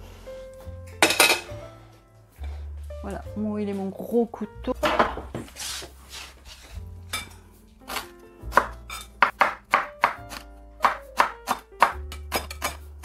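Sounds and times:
soft background music: 0.0s - 13.0s
knife chopping on wooden board: 7.9s - 12.8s.

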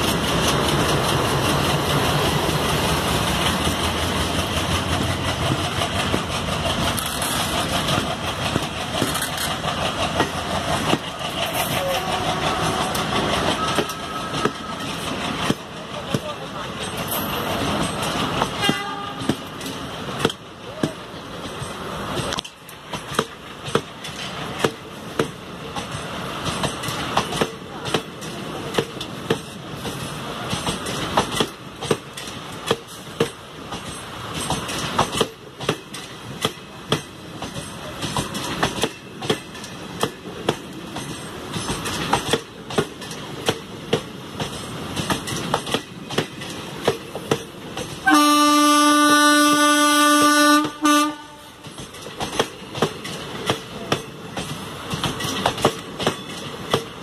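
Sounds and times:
train wheels clicking over rail joints: 0.0s - 57.0s
locomotive horn: 11.8s - 14.5s, 18.6s - 19.3s, 48.0s - 51.6s.

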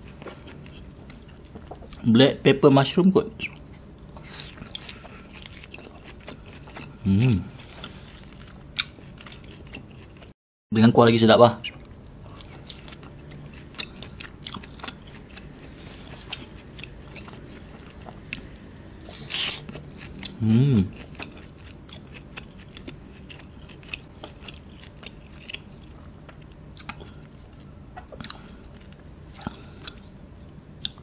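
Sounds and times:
close-up chewing: 0.0s - 2.0s, 3.5s - 10.4s, 11.7s - 30.2s
person humming: 7.0s - 7.6s, 20.4s - 21.0s.

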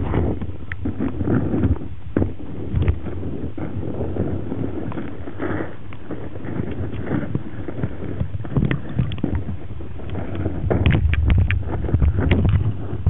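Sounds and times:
underwater rumble of moving water: 0.0s - 13.0s
underwater clicks and knocks: 6.6s - 13.0s.

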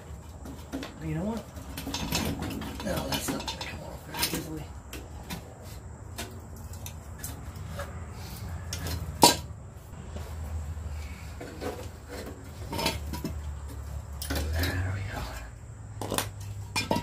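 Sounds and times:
hand tools clinking on metal: 0.2s - 5.4s, 11.4s - 17.0s.

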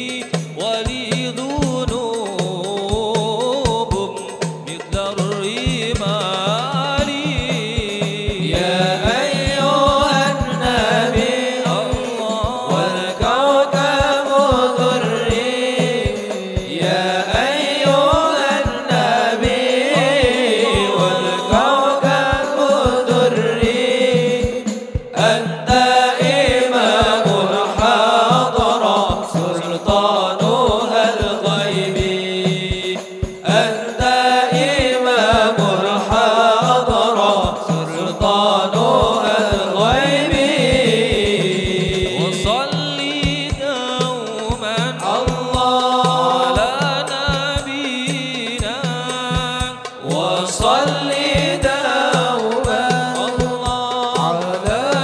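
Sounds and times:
frame drums and bass drum beat: 0.0s - 55.0s
voices singing ornamented melody: 0.0s - 55.0s.

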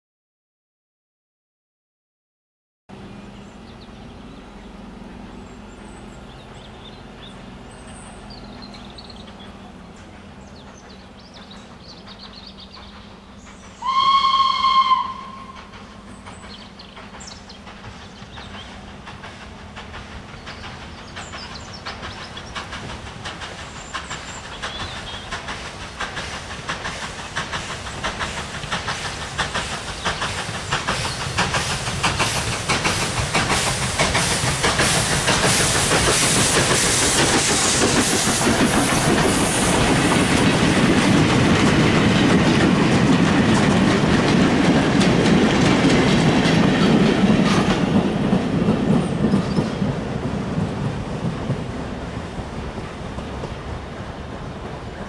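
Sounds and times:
steam locomotive exhaust beats: 2.9s - 55.0s
train rumble: 2.9s - 55.0s
steam locomotive whistle: 13.8s - 15.8s.

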